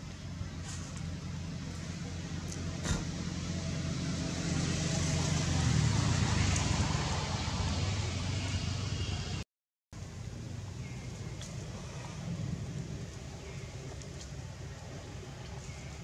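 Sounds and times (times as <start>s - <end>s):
vehicle engine running: 0.0s - 9.4s.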